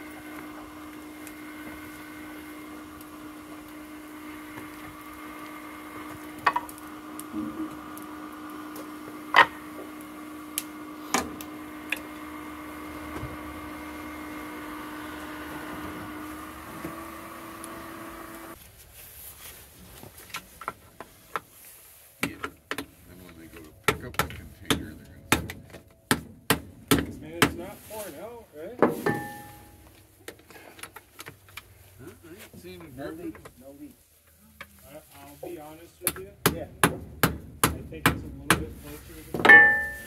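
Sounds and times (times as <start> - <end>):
small motor humming: 0.0 - 18.6.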